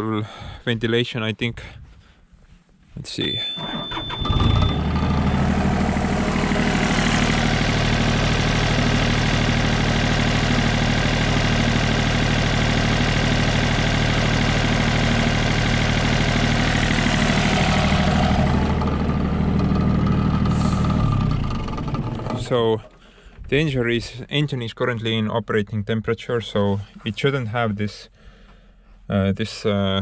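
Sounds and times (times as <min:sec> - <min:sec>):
diesel engine running: 0:03.5 - 0:23.8.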